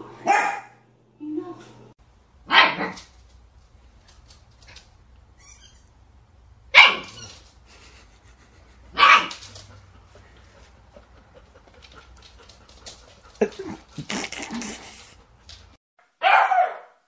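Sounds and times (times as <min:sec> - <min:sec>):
puppy barking: 0:00.2 - 0:00.8, 0:02.5 - 0:03.1, 0:06.7 - 0:07.4, 0:08.9 - 0:09.4, 0:16.2 - 0:17.0.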